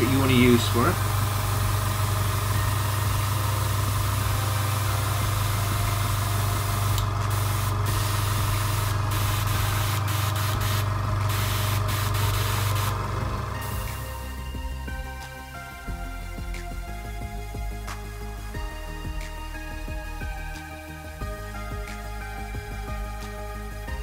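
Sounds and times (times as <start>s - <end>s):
airbrush hissing: 0.0s - 14.4s
compressor humming: 0.0s - 24.0s.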